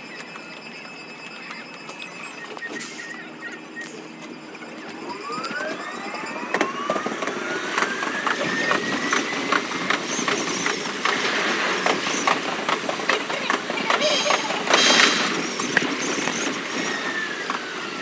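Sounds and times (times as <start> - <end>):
traction motor whine: 0.0 - 18.0
wheels clacking on rail joints: 6.5 - 17.8.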